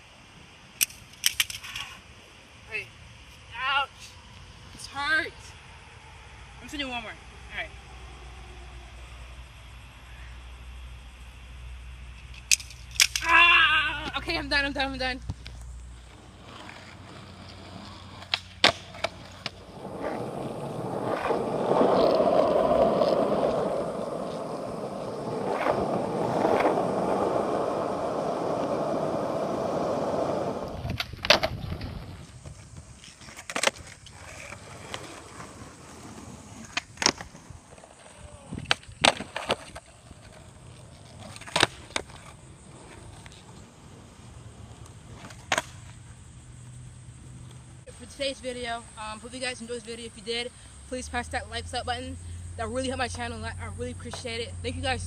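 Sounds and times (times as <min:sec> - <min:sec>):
skateboard wheels rolling on asphalt: 0:00.0 - 0:55.0
skateboard clacking on pavement: 0:15.3 - 0:46.2.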